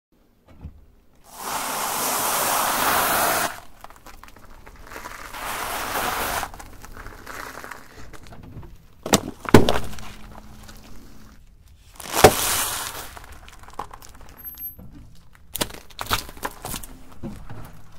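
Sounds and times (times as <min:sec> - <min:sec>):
tyre crunching dry pasta: 0:01.3 - 0:14.6, 0:15.2 - 0:17.9.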